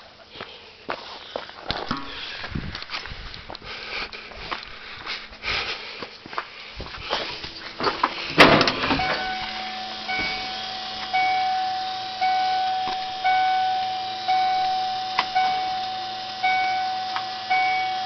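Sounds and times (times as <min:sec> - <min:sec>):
vehicle warning chime dinging: 0:07.4 - 0:18.0
thump: 0:08.3 - 0:09.0.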